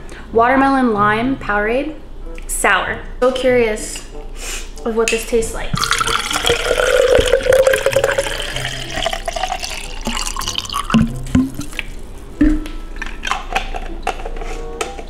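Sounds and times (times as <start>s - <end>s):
drink pouring into a glass: 5.8s - 12.0s.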